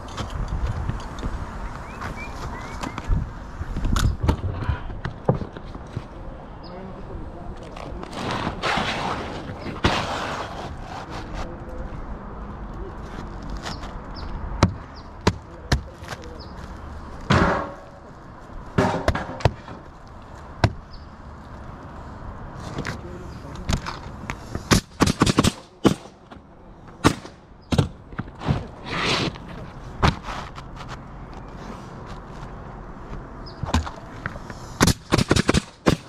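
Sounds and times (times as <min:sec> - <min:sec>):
pneumatic nailer firing: 0:24.7 - 0:26.1, 0:34.8 - 0:36.0.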